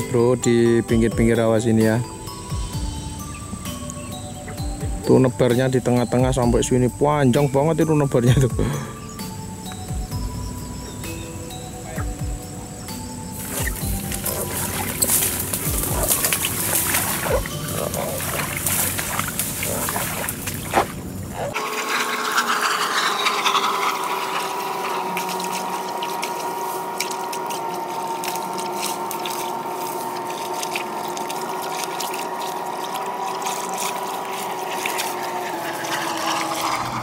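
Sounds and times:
steady hum: 0.9 - 37.0
reed stems crackling: 9.0 - 37.0
splashing in shallow water: 13.3 - 37.0.

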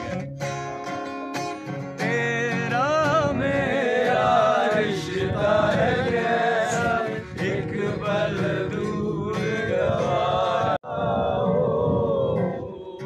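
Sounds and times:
strummed acoustic guitar: 0.0 - 10.8
men singing in chorus: 3.0 - 12.8.

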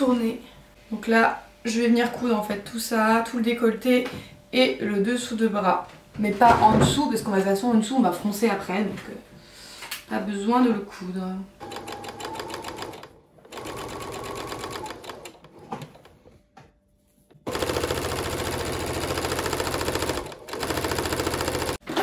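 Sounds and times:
sewing machine rattling: 11.6 - 16.1, 17.4 - 22.0.

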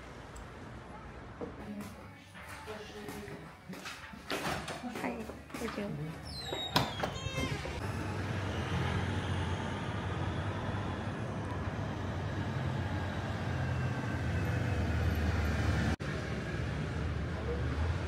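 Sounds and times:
traffic engine rumble: 7.0 - 18.0
van passing: 7.7 - 18.0.

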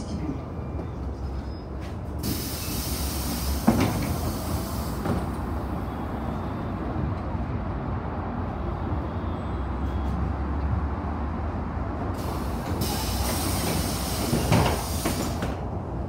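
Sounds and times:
bus engine and road rumble: 0.0 - 16.0
air hissing: 2.2 - 5.3, 12.2 - 15.6.

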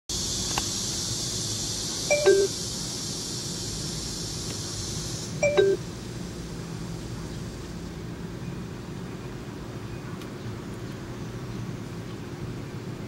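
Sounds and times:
low hiss and hum: 0.1 - 13.0
two-note falling beep: 2.1 - 2.5, 5.4 - 5.8.

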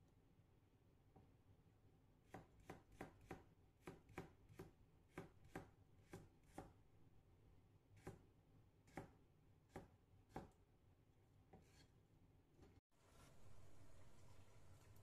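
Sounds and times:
knife chopping carrot on board: 2.2 - 6.8, 8.0 - 8.2, 8.8 - 10.6.

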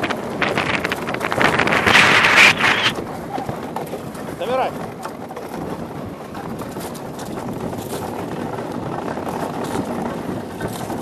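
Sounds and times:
rushing wind: 0.0 - 11.0
runners hissing over ice: 1.3 - 3.0.

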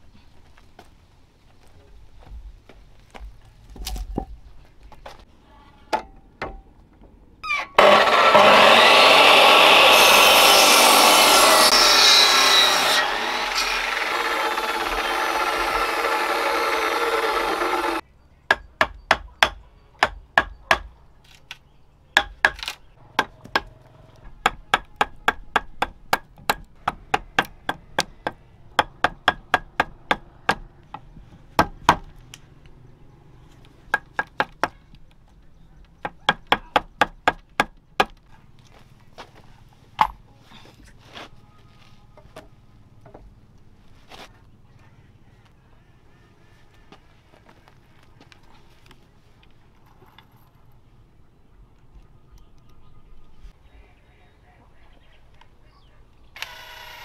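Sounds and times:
power tool cutting wood: 7.7 - 18.0, 56.4 - 57.0
hammer striking chisel: 17.8 - 20.9, 22.2 - 22.6.

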